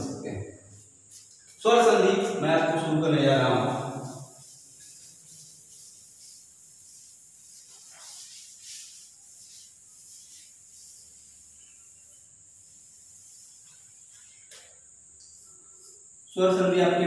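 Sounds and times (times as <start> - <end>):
steady high hiss: 0.0 - 17.0
chalkboard duster swishing: 0.7 - 16.6.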